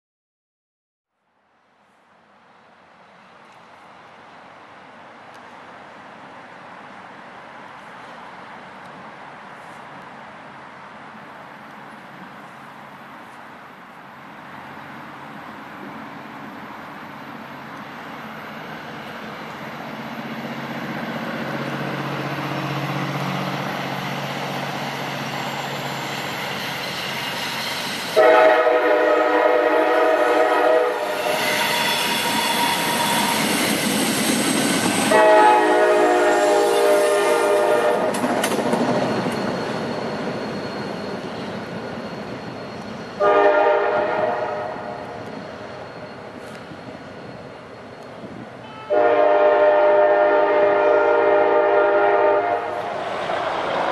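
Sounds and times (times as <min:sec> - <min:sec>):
rail wheels clicking: 0:14.8 - 0:53.9
locomotive air horn blasts: 0:28.2 - 0:33.4, 0:35.1 - 0:38.2, 0:43.2 - 0:45.0, 0:48.6 - 0:52.8.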